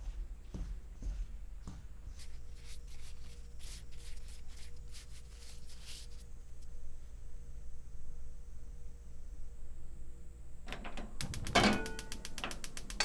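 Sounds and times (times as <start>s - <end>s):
steady low hum: 0.0s - 13.0s
fingers rustling spice powder: 2.1s - 6.7s.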